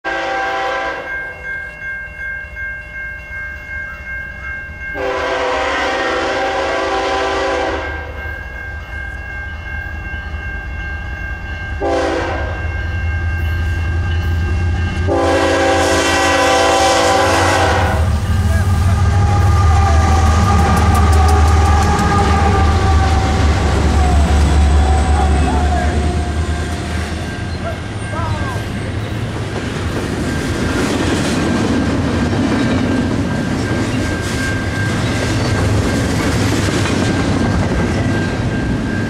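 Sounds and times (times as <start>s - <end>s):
locomotive air horn blasts: 0.0s - 1.1s, 5.0s - 8.2s, 11.8s - 12.6s, 15.0s - 27.2s
crossing bell ringing: 0.0s - 39.0s
diesel locomotive rumble: 13.6s - 39.0s.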